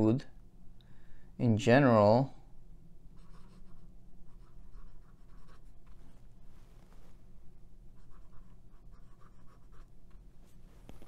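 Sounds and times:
fountain pen scratching on paper: 0:03.2 - 0:06.0, 0:08.0 - 0:09.9.

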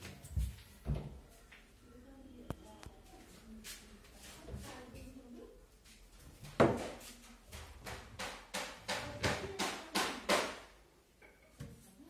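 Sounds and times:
knocks on wooden panels: 0:06.6 - 0:07.0, 0:07.6 - 0:10.6.

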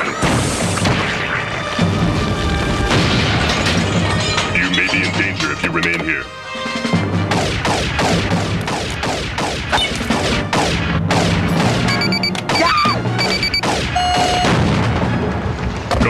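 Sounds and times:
action music: 0:00.0 - 0:16.0
electronic beeping: 0:11.9 - 0:14.6.

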